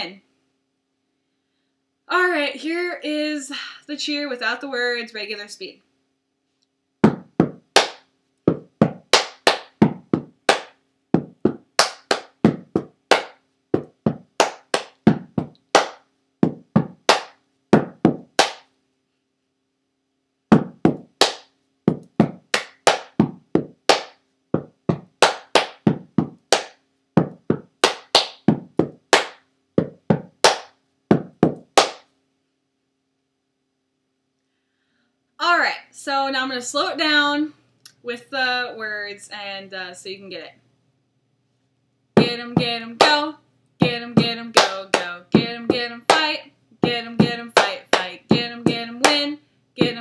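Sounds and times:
rhythmic hand claps and slaps: 0:07.0 - 0:18.7, 0:20.5 - 0:32.1, 0:42.2 - 0:50.0.

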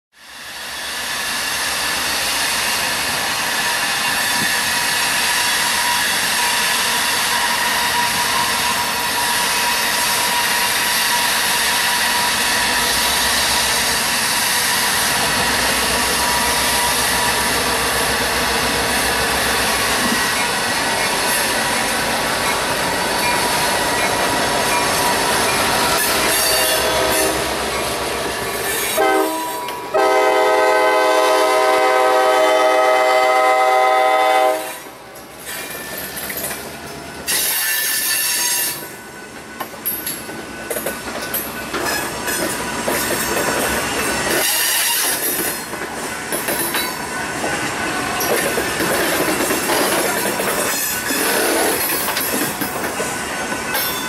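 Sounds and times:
diesel locomotive rumbling: 0:00.6 - 0:37.6
freight cars wheel squeal: 0:19.7 - 0:27.8, 0:37.3 - 0:38.9, 0:44.2 - 0:45.4
locomotive horn: 0:26.2 - 0:27.6, 0:29.0 - 0:34.9.

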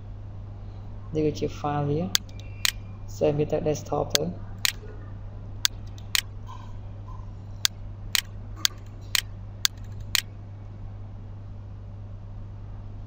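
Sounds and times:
steady low hum: 0:00.0 - 0:13.0
mouse button clicking: 0:05.7 - 0:06.2.

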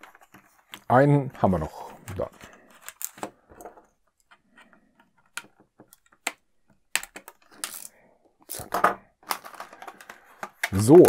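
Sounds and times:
plastic clatter: 0:08.5 - 0:11.0
plastic packaging clicks and crackles: 0:09.2 - 0:11.0.

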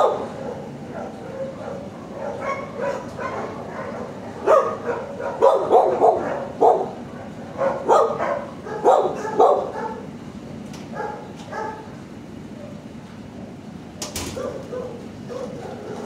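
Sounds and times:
dogs barking: 0:00.0 - 0:10.2, 0:10.8 - 0:13.0, 0:14.2 - 0:16.0.

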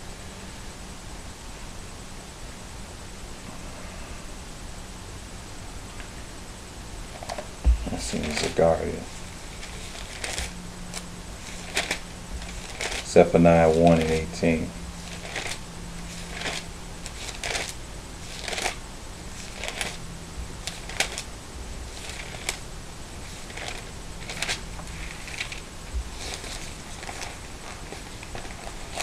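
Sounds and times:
book pages rustling: 0:07.2 - 0:21.3, 0:21.9 - 0:29.0.

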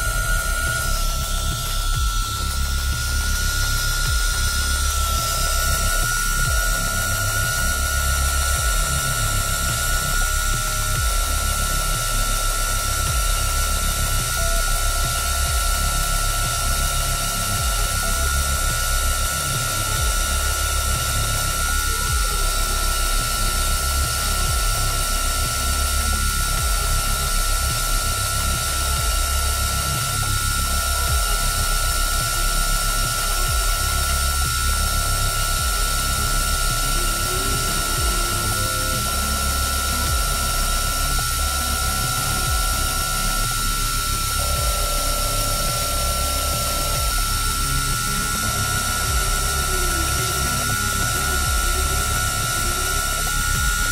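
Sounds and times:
low machine hum: 0:00.0 - 0:53.9
router spindle high whine: 0:00.0 - 0:53.9.

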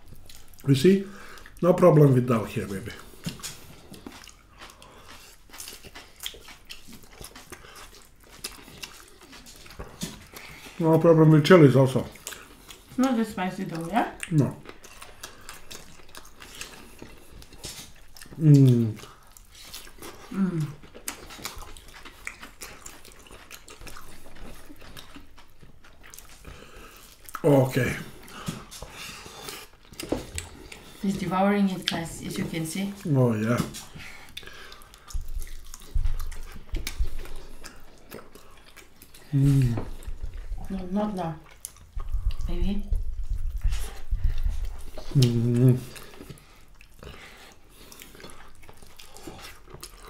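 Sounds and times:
food squelching by hand: 0:00.0 - 0:50.0
people chewing with wet mouth sounds: 0:00.0 - 0:50.0
person humming mm: 0:18.4 - 0:19.1, 0:20.3 - 0:20.8, 0:39.3 - 0:40.0, 0:45.0 - 0:46.1.

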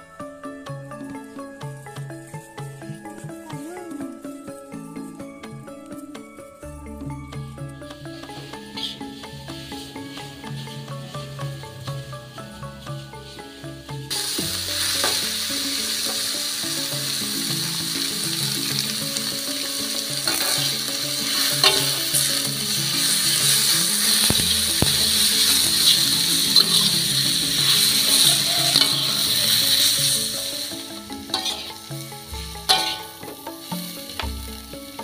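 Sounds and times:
food sizzling in a wok: 0:08.0 - 0:35.0
metal spatula scraping a pan: 0:08.2 - 0:11.4, 0:14.1 - 0:35.0.

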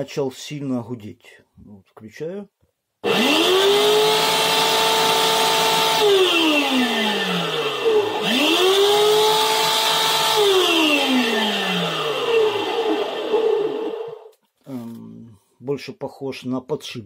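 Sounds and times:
vacuum cleaner motor humming: 0:03.0 - 0:14.3.

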